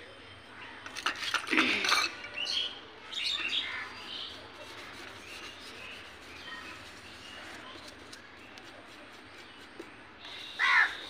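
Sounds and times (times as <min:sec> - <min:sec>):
birds chirping: 0:00.0 - 0:11.0
toothbrush scraping steel bowl: 0:03.6 - 0:11.0.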